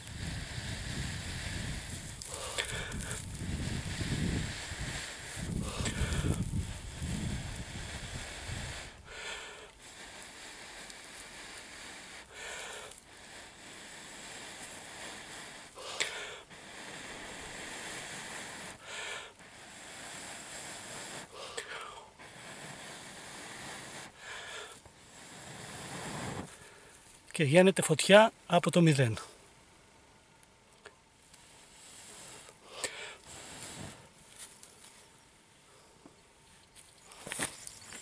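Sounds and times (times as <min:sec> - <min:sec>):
person blowing short puffs: 0:00.0 - 0:27.0, 0:31.4 - 0:34.6.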